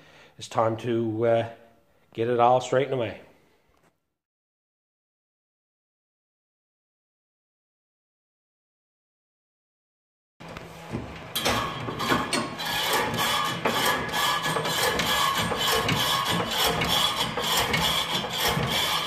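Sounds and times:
suspension scraping and clicking: 11.3 - 19.0.

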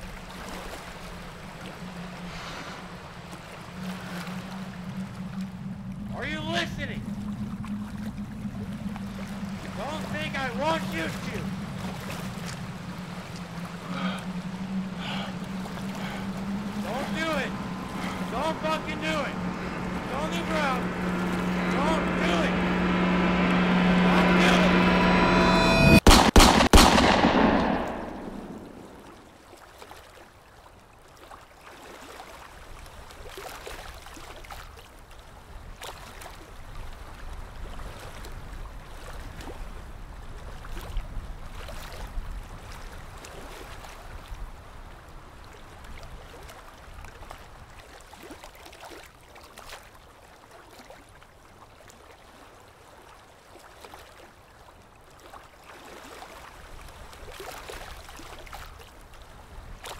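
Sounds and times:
wind: 0.0 - 59.9
river water rushing: 7.2 - 25.4
gunshot echo: 25.8 - 29.2.

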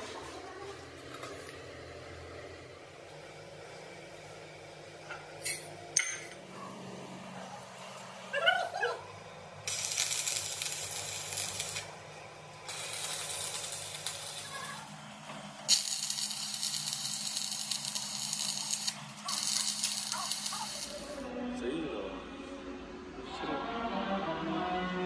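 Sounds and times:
steady low hum: 0.1 - 23.4
welding arc crackling and hissing: 9.6 - 12.0, 12.6 - 21.3.

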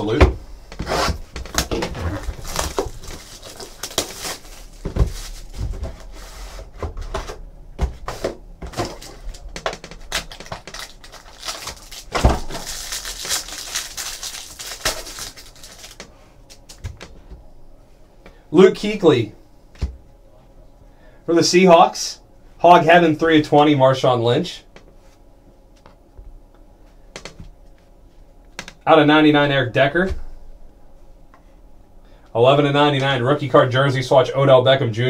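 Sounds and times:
cardboard and cards rustling: 1.1 - 17.2
wrapper tearing and crinkling: 1.5 - 5.5, 8.8 - 16.8.

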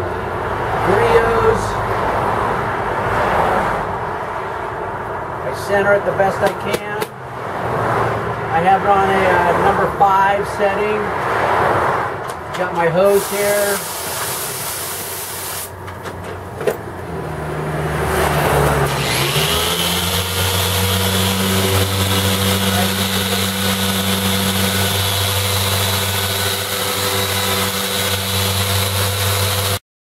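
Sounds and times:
water spraying from hose: 13.1 - 15.7
polisher running: 18.8 - 29.8.

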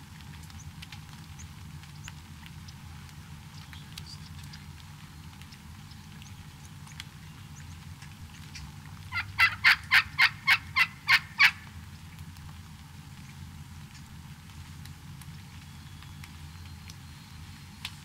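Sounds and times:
turkey calling: 8.4 - 11.7.

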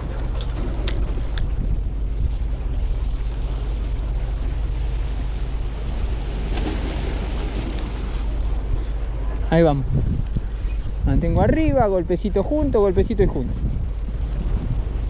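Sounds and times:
waves washing against rocks: 0.0 - 8.8
wind buffeting microphone: 0.0 - 15.0.

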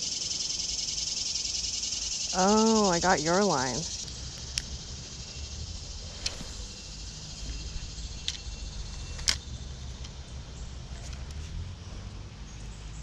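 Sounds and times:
fishing reel clicks: 7.7 - 10.1.

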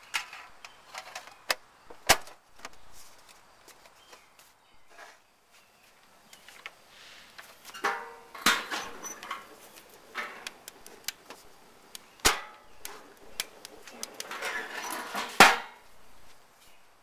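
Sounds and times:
grill lid metal clanks: 7.7 - 10.6, 13.9 - 15.8
metal tin set on grate: 12.3 - 15.7.

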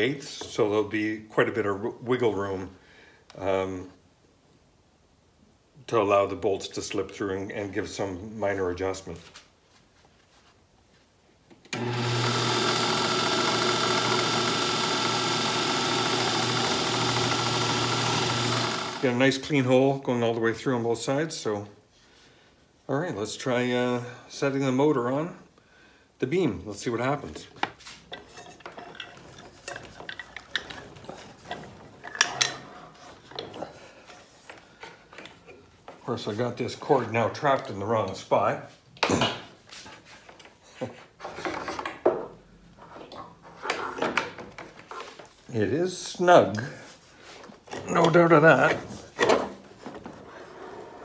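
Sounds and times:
drill press motor hum: 11.7 - 19.0.

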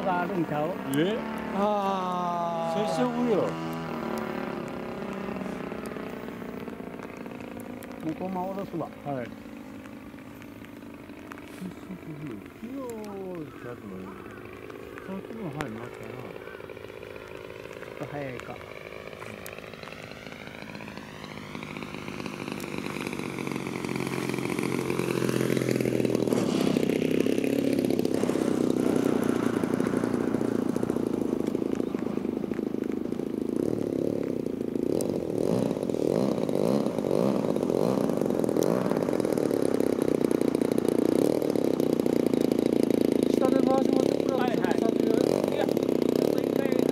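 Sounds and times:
model airplane engine: 0.0 - 46.9.

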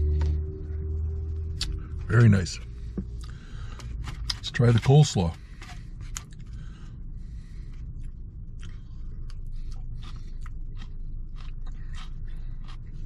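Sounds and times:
low car cabin hum: 0.0 - 13.0
chewing clicks: 8.0 - 13.0.

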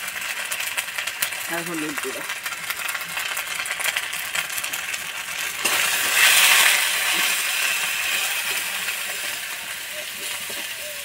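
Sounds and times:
spices sizzling in hot oil: 0.0 - 11.0.

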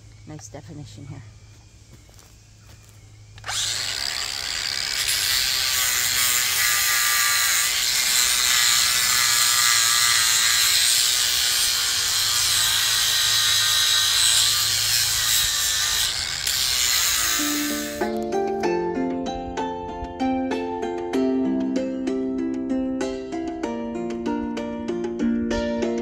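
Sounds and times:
angle grinder whining: 3.4 - 18.3
grinder disc grinding wood: 3.4 - 18.3.

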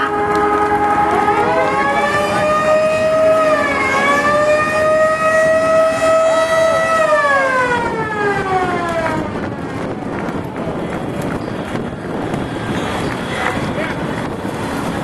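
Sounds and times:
faint second siren tone: 0.0 - 8.6
mechanical siren: 0.0 - 9.4.

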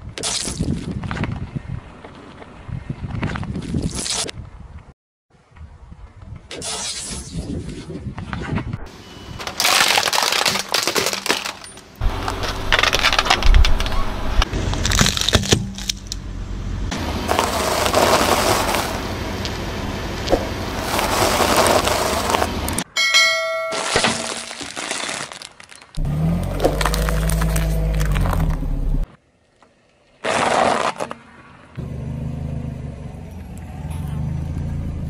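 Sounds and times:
plastic crunching under tyre: 9.4 - 16.2, 16.9 - 19.6, 20.2 - 22.8, 23.8 - 29.1, 30.2 - 31.2
low engine rumble: 11.8 - 22.8, 26.0 - 29.1, 31.8 - 35.0.

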